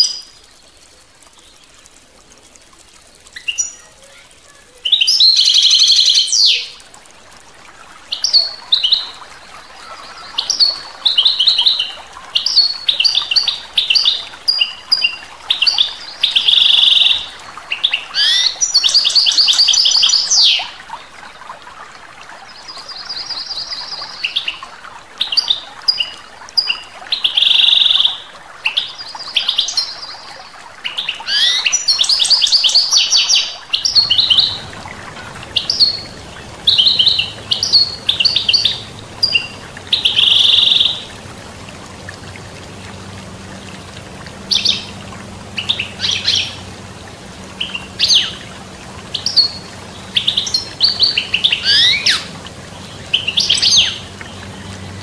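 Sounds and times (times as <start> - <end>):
stream rushing: 0.0 - 55.0
finch singing: 31.2 - 41.2.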